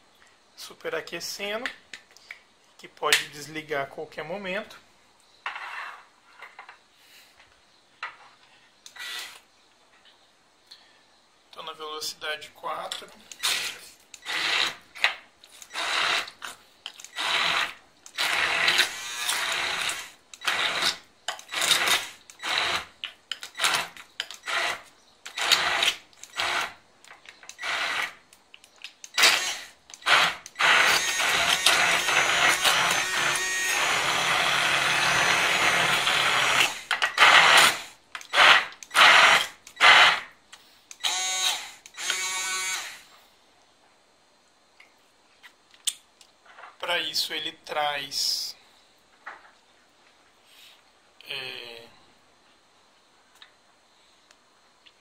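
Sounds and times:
hand blender chopping: 29.2 - 40.2.

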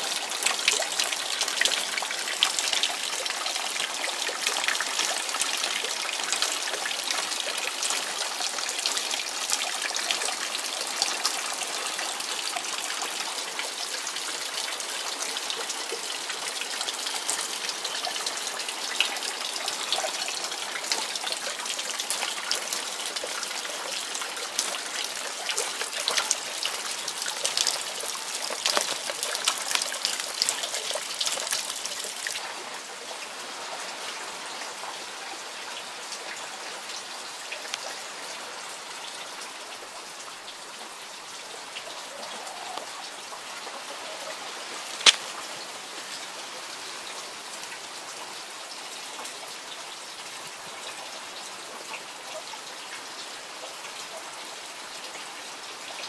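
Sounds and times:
rain falling hiss: 0.0 - 56.0
water splashing from drainpipe: 15.6 - 32.4, 44.8 - 45.5
sharp click: 45.0 - 45.2.

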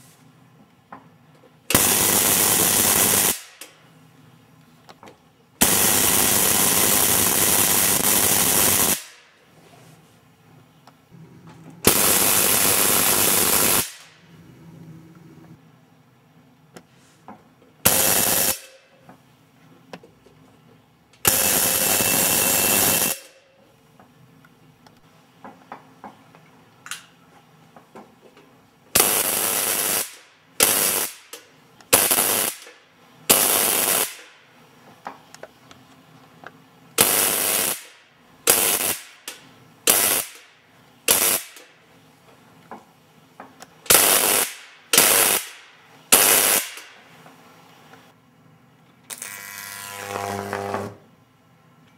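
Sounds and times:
tesla coil sparks crackling: 11.8 - 14.2, 29.0 - 32.7, 37.0 - 40.5, 41.1 - 41.7, 43.9 - 46.9.

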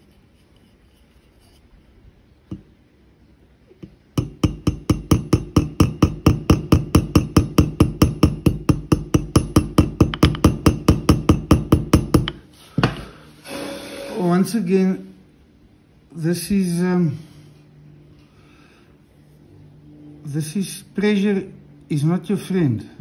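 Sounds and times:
hammer tapping on metal: 3.8 - 13.0.

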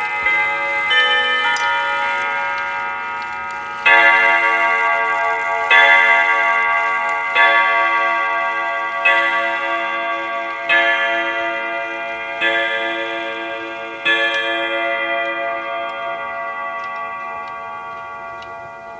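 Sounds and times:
clock striking on gong rods: 0.1 - 8.4.

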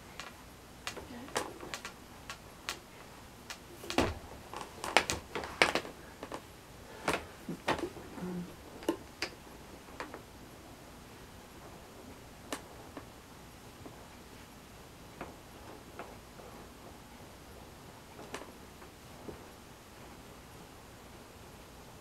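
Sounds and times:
light clicks and taps: 0.1 - 6.4.

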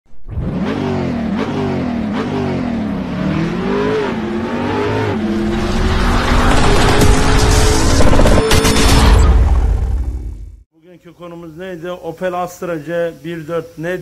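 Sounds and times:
car engine revving: 0.2 - 10.5.

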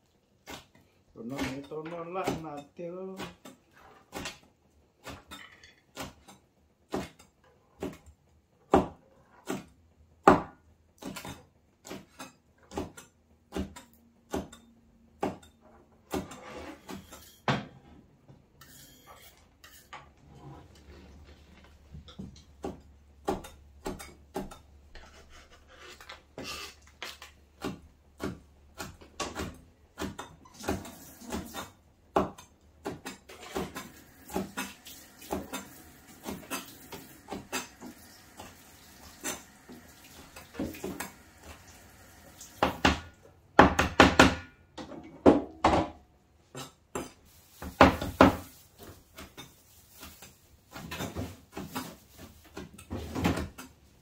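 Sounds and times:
utensils and cookware knocking: 5.0 - 8.1, 18.6 - 20.2, 22.0 - 25.1.

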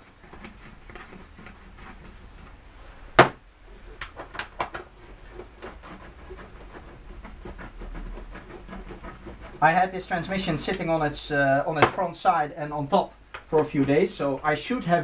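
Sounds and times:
sharp knock: 3.2 - 3.4.

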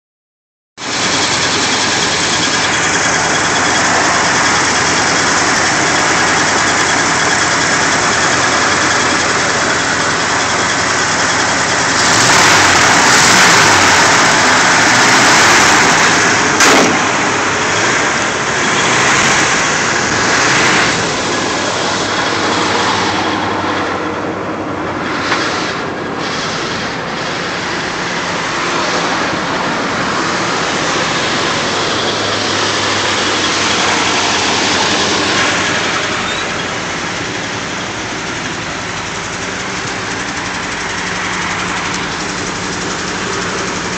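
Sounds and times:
truck engine idling: 0.8 - 43.9
sharp click: 16.6 - 17.1.

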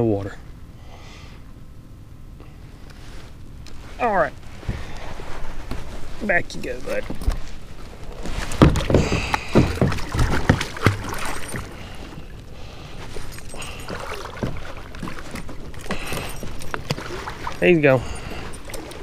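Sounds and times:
fish splashing in water: 8.6 - 12.4, 13.5 - 19.0
lapping water: 8.8 - 19.0.

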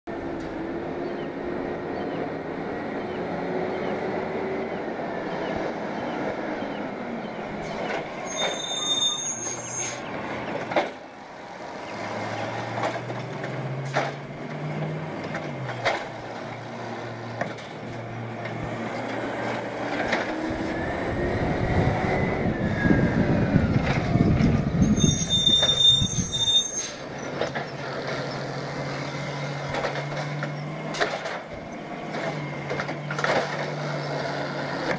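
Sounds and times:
heavy rumble: 12.2 - 34.1
cart banging against hopper: 12.6 - 16.6, 29.2 - 34.0.

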